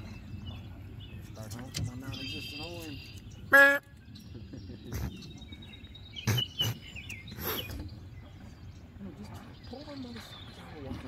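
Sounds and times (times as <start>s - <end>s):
birds chirping: 0.0s - 11.0s
low outdoor background noise: 0.0s - 11.0s
loud pitched bird call: 6.2s - 7.8s.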